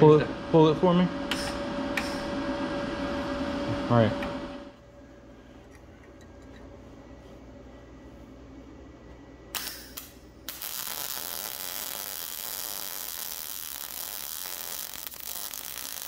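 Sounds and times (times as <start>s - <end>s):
welding arc sizzling: 0.0s - 2.9s, 9.5s - 16.0s.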